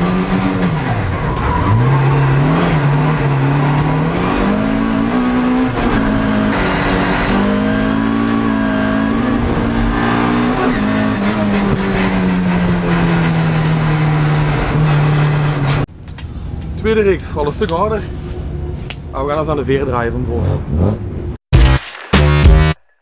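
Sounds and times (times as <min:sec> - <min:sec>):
car engine revving with gear changes: 0:00.0 - 0:15.9, 0:20.3 - 0:21.4.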